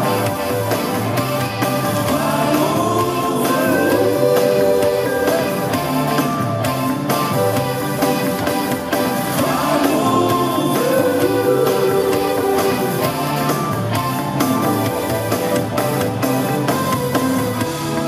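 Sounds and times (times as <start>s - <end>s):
electric guitar: 0.0s - 18.0s
live band music over pa: 0.0s - 18.0s
man singing: 2.0s - 5.8s, 9.4s - 13.2s.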